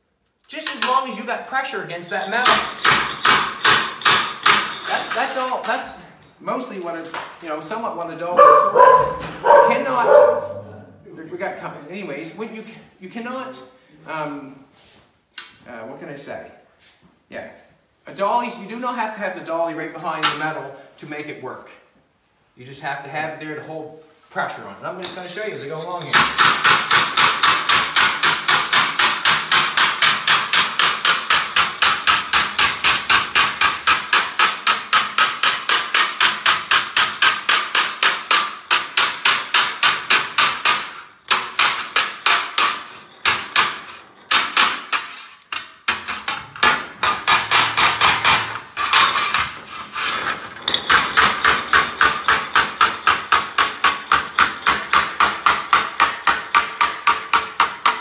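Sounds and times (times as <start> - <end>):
hammer striking sheet metal: 2.4 - 4.9, 26.1 - 49.6, 50.7 - 58.0.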